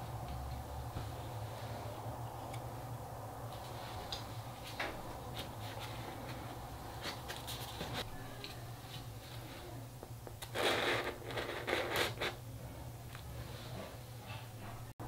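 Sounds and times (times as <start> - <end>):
skewer crisp rustling scrapes: 10.5 - 12.4.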